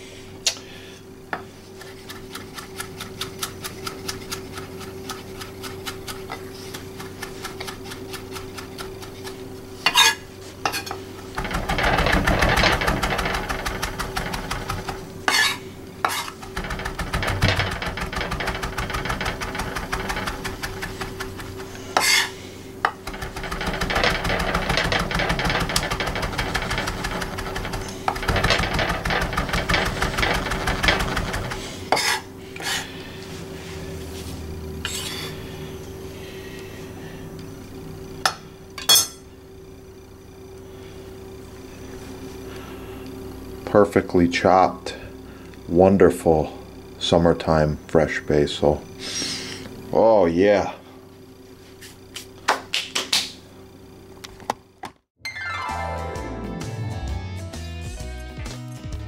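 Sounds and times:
knife chopping on wooden board: 0:01.8 - 0:10.9.

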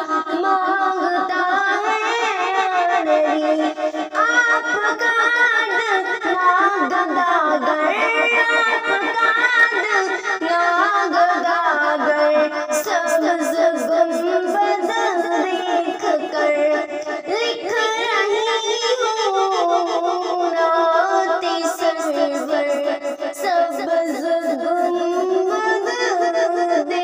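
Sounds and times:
woman singing solo: 0:00.0 - 0:27.0.

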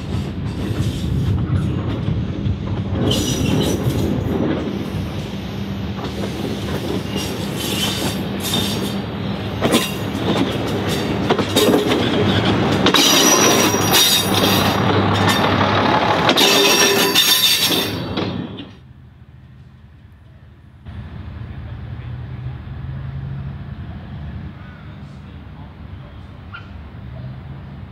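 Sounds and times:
wheels clicking over rail joints: 0:09.6 - 0:18.8
diesel engine hum: 0:18.8 - 0:27.9.

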